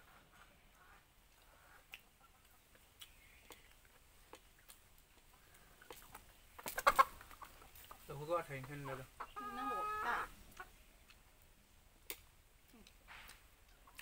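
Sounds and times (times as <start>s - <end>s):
chicken clucking: 0.0s - 11.1s.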